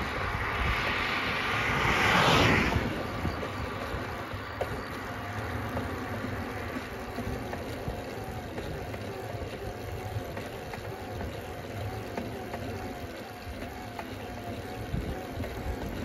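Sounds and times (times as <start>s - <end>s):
wind rush: 0.0s - 4.5s
bicycle tyre noise on road: 0.0s - 16.0s.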